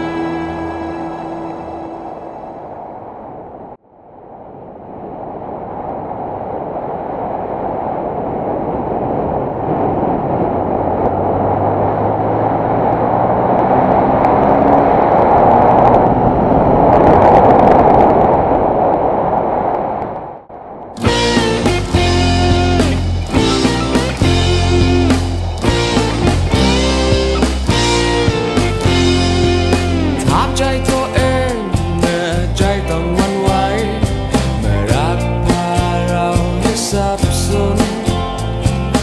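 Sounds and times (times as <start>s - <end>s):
background music: 0.0s - 2.7s, 21.0s - 39.0s
wind rushing over microphone: 0.0s - 39.0s
motorcycle engine running: 21.4s - 30.5s.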